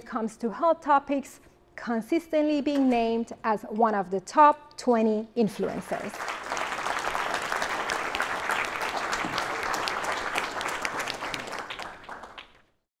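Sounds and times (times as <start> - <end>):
audience applauding: 6.1 - 12.7.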